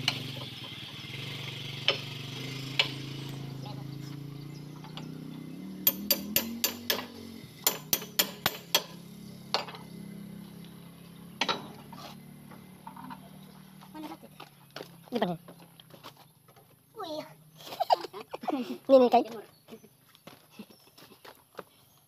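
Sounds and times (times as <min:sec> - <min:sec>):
low engine hum: 0:00.0 - 0:18.0
metal-on-metal clinks: 0:05.8 - 0:09.9.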